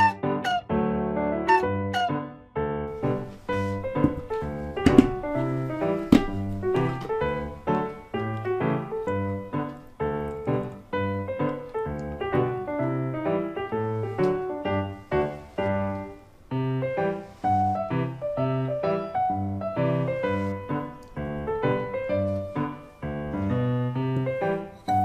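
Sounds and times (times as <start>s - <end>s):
piano keyboard music: 0.0s - 25.0s.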